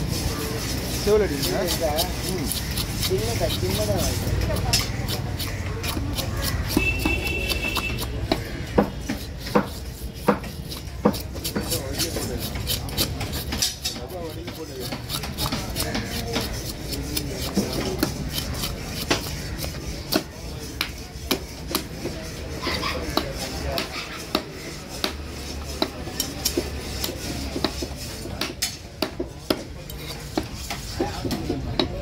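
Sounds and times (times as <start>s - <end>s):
knife scraping fish scales: 0.0s - 31.8s
knife striking chopping block: 4.5s - 22.0s, 23.1s - 25.2s, 25.8s - 32.0s.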